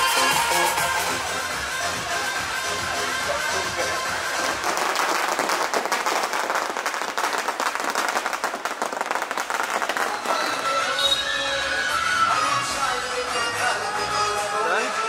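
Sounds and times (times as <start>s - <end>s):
crowd applauding: 3.3s - 12.7s.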